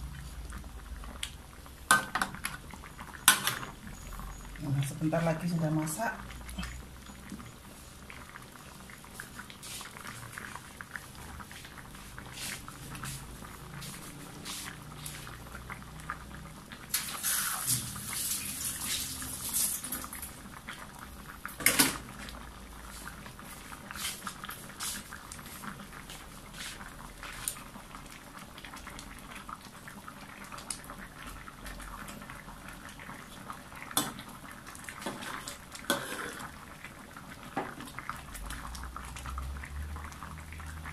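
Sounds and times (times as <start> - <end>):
thick sauce bubbling and popping: 0.0 - 40.9.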